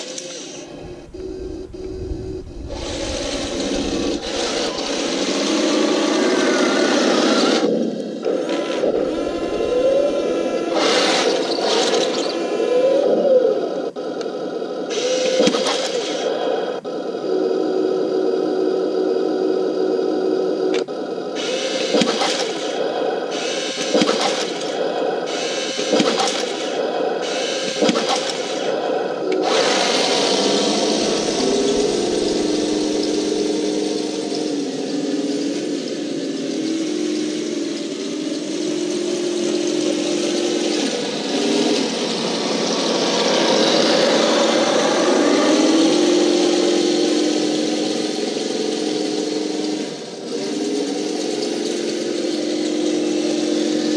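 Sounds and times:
drive motors running: 0.0 - 14.2, 27.6 - 44.6
toy tank electronic engine sound: 0.0 - 53.9.

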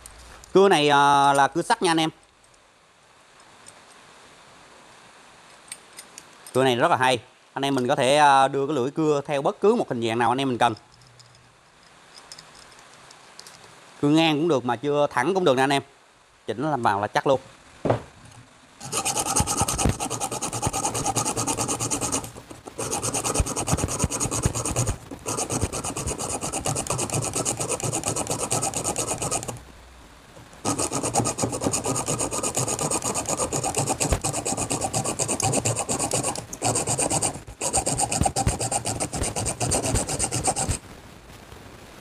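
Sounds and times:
hand saw cutting wood: 18.8 - 29.6, 30.6 - 40.8.

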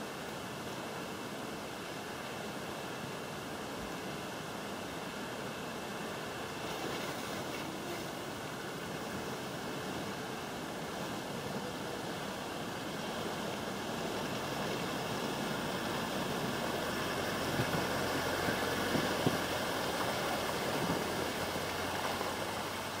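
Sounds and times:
flowing water rushing: 0.0 - 23.0
vehicle engine running low: 5.3 - 23.0.

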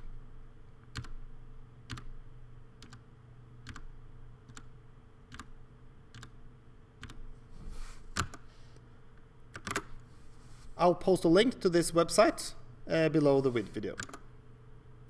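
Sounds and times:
faint electrical hum: 0.0 - 15.0
keyboard key clicks: 6.1 - 6.4, 9.5 - 9.9.

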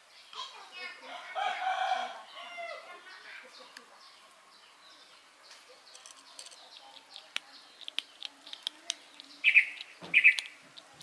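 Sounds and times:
birds chirping faintly: 0.0 - 11.0
kitten crunching kibble: 6.0 - 11.0.

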